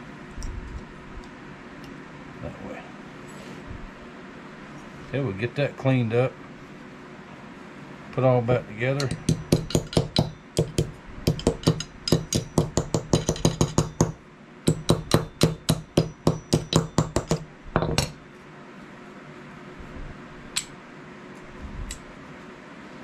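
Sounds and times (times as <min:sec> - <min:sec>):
hammer tapping on steel: 0:09.0 - 0:18.2.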